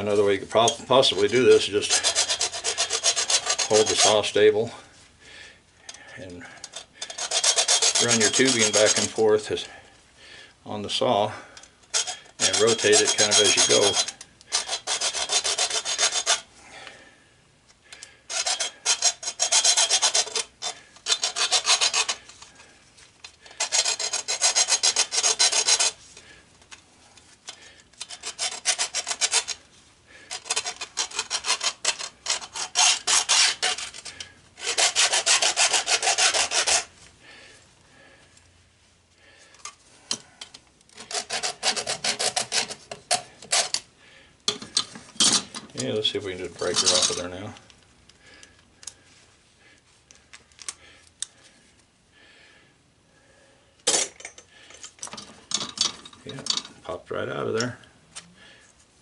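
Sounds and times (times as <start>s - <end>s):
hacksaw cutting copper tubing: 0.1s - 4.3s, 6.6s - 9.2s, 11.6s - 16.5s, 17.9s - 22.6s, 23.2s - 26.3s, 27.5s - 36.9s, 39.6s - 43.9s, 44.5s - 46.0s.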